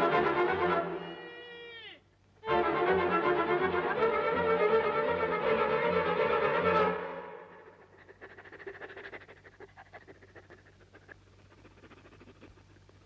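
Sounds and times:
violin music: 0:00.0 - 0:01.2, 0:02.4 - 0:07.7
dog panting and sniffing: 0:07.6 - 0:13.0.

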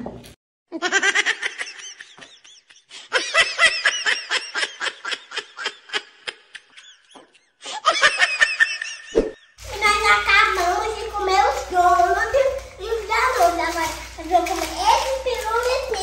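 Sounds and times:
children giggling: 0:00.7 - 0:09.6.

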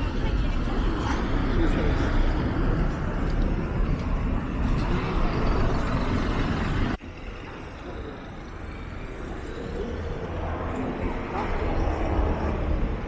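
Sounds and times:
buses and cars passing: 0:00.0 - 0:13.0.

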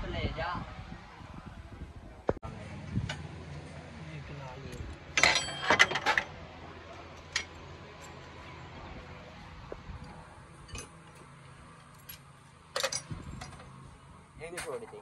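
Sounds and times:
tools clinking on metal engine parts: 0:04.7 - 0:08.5, 0:10.6 - 0:13.8, 0:14.5 - 0:15.0.

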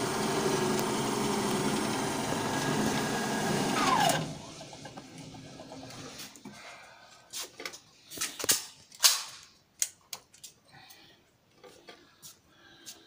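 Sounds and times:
cartridges clicking into magazine: 0:08.4 - 0:10.4.

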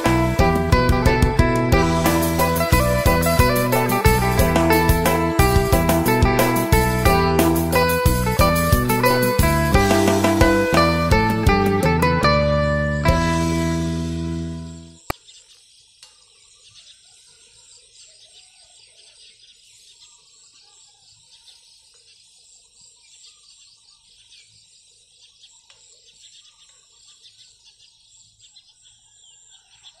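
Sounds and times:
distant bird calls: 0:14.9 - 0:30.0.

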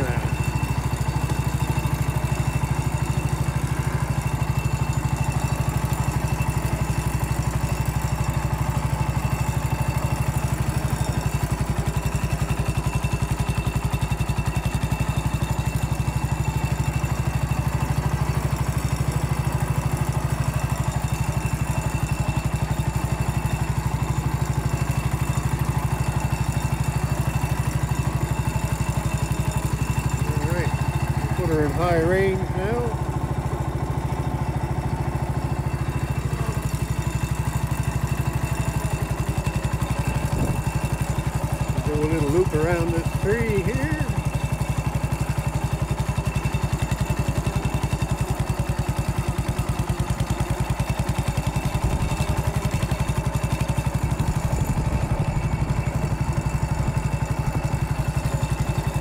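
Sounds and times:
garden tractor engine running: 0:00.0 - 0:59.0.

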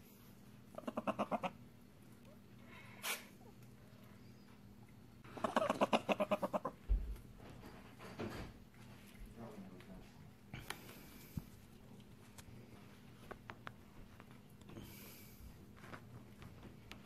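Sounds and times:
prairie dog pup chirping: 0:00.7 - 0:02.4, 0:03.5 - 0:06.9.

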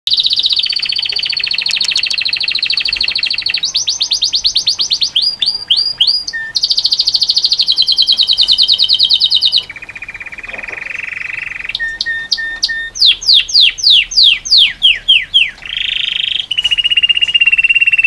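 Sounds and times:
canary singing trills: 0:00.1 - 0:18.0.

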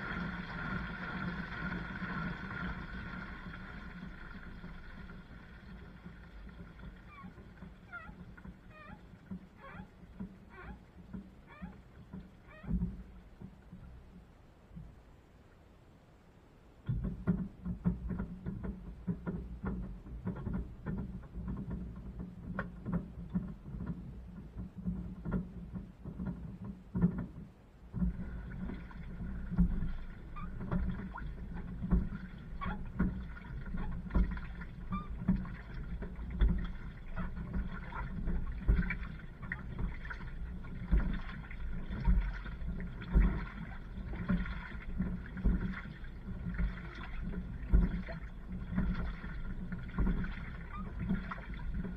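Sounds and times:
water sloshing in washing machine: 0:00.0 - 0:13.9, 0:16.9 - 0:51.9.

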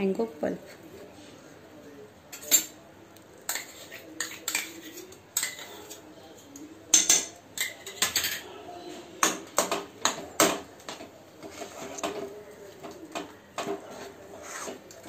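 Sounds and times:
metal spoon scraping bowl and pan: 0:03.4 - 0:08.4, 0:09.6 - 0:12.3, 0:13.2 - 0:15.0.

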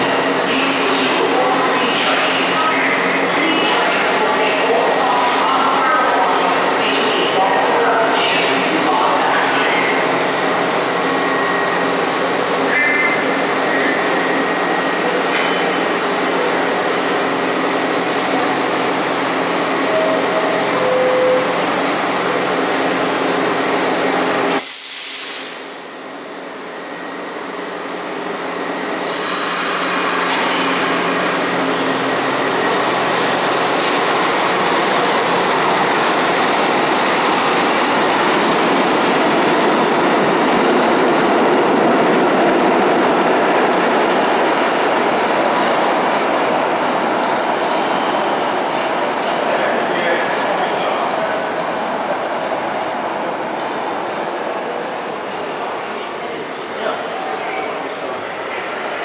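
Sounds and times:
subway train humming: 0:00.0 - 0:59.0
train wheels and motors: 0:25.5 - 0:41.9.

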